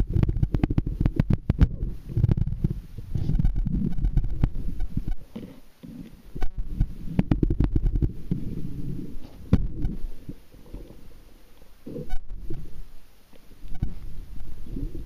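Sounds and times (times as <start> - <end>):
sharp clicks and knocks: 0.0 - 8.4
low underwater rumbling: 0.0 - 15.0.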